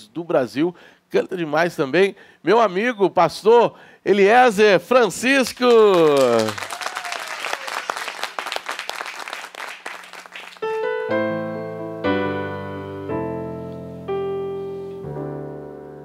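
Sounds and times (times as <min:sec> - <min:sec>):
applause: 0:05.4 - 0:10.9
keyboard piano chords: 0:10.6 - 0:16.0.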